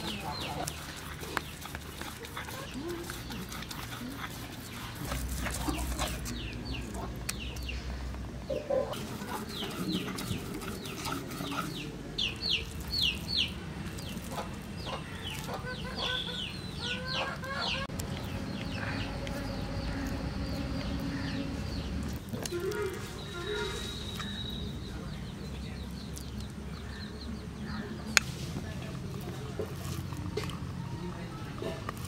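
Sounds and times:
chickens peeping: 0.0 - 30.3.

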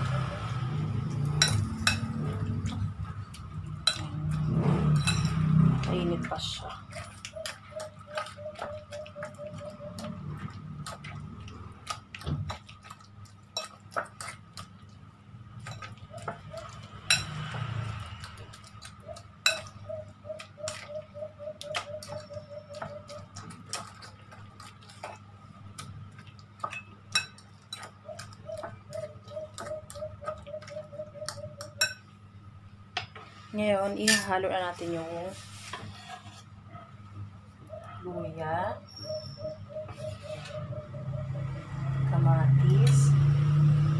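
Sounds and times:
fork mashing soft vegetables: 1.0 - 15.0, 20.4 - 20.9, 21.5 - 30.7
fork clinking against glass bowl: 1.3 - 2.4, 3.8 - 4.3, 4.9 - 5.6, 15.6 - 17.5, 19.4 - 19.8, 26.6 - 28.7, 31.6 - 32.1.

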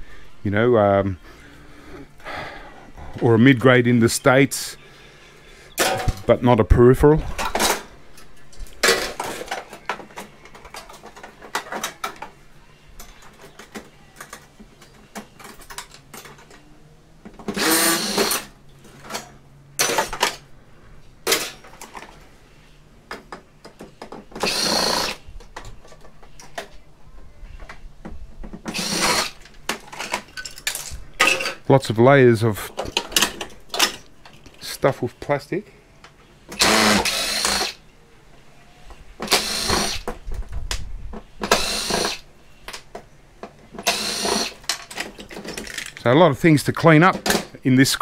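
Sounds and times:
impact driver bursts: 17.5 - 18.5, 24.3 - 25.2, 28.7 - 29.4, 36.6 - 37.8, 39.2 - 40.1, 41.4 - 42.2, 43.8 - 44.7
clicks of parts being handled: 44.6 - 46.1.

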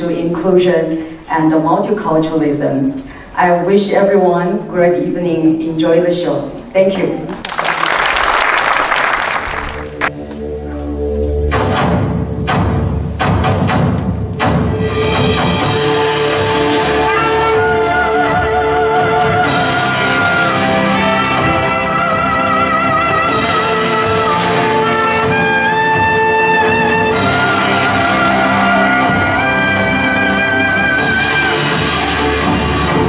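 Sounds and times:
accompanying ensemble: 7.0 - 33.0
trumpet playing slow melody: 16.2 - 32.4.

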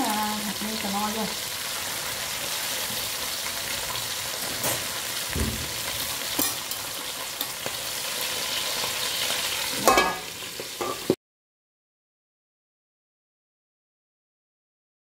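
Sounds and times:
food sizzling in oil in a wok: 0.0 - 11.2
metal lid clanking on wok: 4.4 - 7.8, 9.7 - 11.2.

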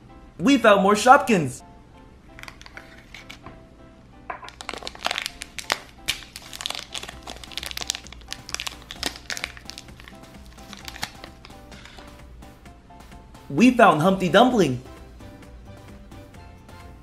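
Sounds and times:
background music: 0.0 - 17.0
plastic wrapper crinkling: 2.4 - 3.4, 4.4 - 12.2.

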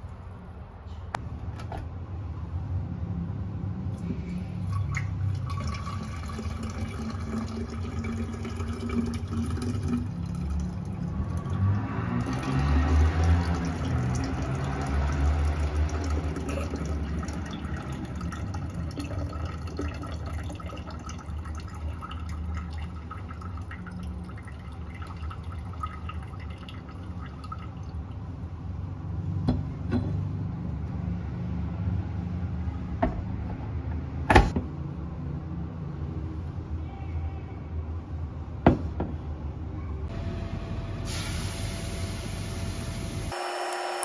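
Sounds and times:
liquid trickling into glass: 4.6 - 28.3.

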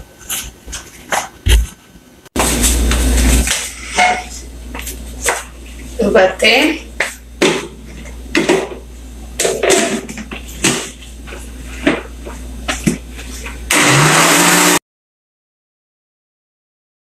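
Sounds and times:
blender running: 13.7 - 14.8.

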